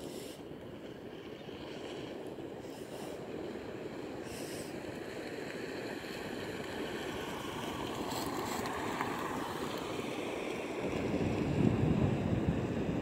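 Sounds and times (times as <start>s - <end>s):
sea waves breaking on beach: 0.0s - 13.0s
wind on microphone: 10.6s - 13.0s.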